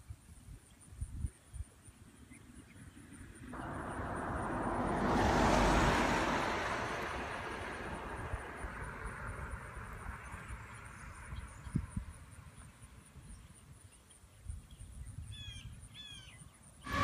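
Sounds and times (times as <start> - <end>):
vehicle passing by: 3.4 - 11.6.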